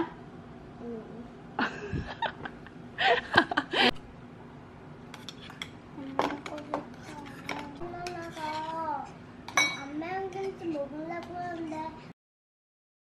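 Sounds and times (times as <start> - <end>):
metal spoon clinking in bowl: 9.5 - 9.9.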